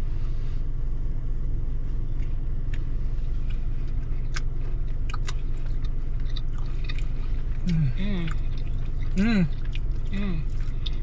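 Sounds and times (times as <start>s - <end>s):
car engine idling: 0.0s - 11.0s
people chewing: 3.5s - 11.0s.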